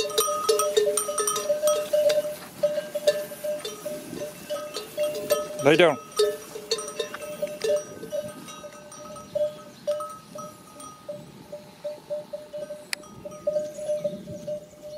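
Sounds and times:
sheep bells clanking: 0:00.0 - 0:14.9.

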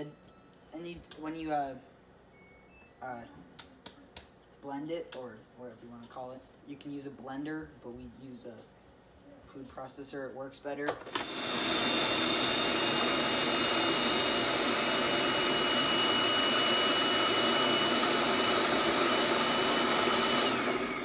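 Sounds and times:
food processor chopping: 0:11.0 - 0:21.0.

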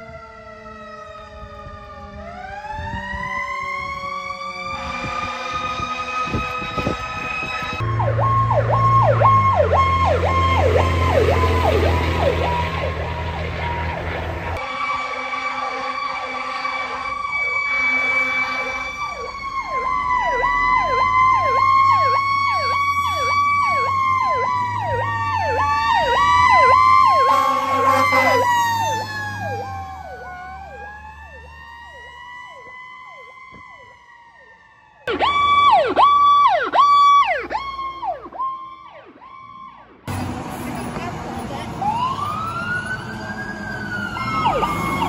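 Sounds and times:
ambulance siren yelping: 0:00.0 - 0:40.1, 0:41.4 - 0:45.0
fire truck siren wailing: 0:00.0 - 0:45.0
siren yelping fast: 0:01.4 - 0:14.0, 0:14.6 - 0:39.9, 0:41.8 - 0:45.0
short horn blasts: 0:27.2 - 0:28.5.

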